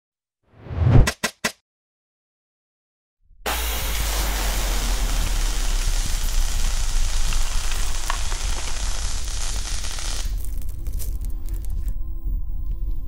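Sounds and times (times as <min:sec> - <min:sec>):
sparks sizzling hiss: 0:03.5 - 0:11.8.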